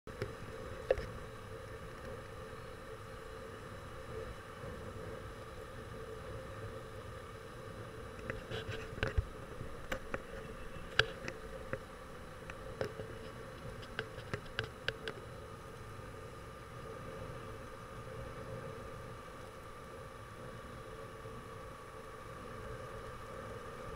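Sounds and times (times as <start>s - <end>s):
sharp clicks and rattles: 12.4s - 15.2s.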